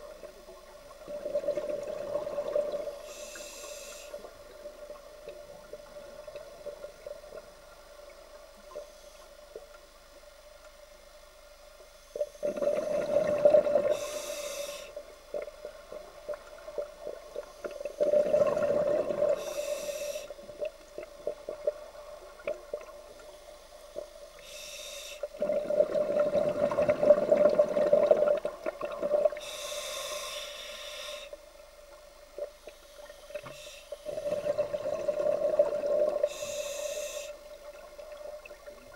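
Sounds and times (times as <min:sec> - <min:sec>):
regulator inhalation hiss: 0:02.9 - 0:04.4, 0:13.8 - 0:15.1, 0:19.2 - 0:20.5, 0:24.3 - 0:25.4, 0:29.4 - 0:31.4, 0:32.8 - 0:34.1, 0:36.2 - 0:37.6
exhaled bubbles rushing: 0:25.4 - 0:29.4.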